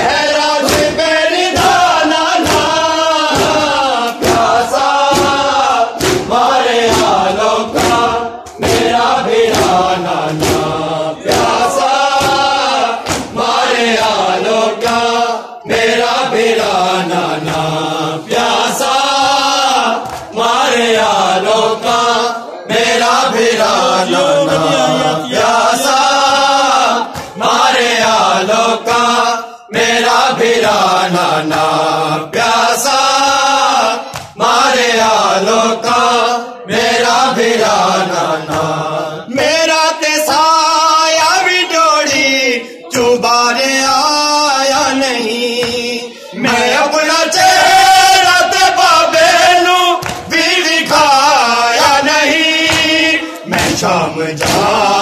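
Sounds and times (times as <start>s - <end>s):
men chanting in unison: 0.0s - 55.0s
hands slapping chests: 0.5s - 22.0s, 23.5s - 29.3s, 34.1s - 34.5s, 38.4s - 38.8s, 50.0s - 51.2s, 51.8s - 55.0s.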